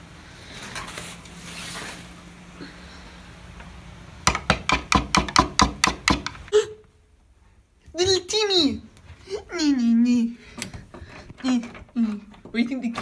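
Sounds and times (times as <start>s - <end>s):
rapid knocking on a door: 4.3s - 6.4s.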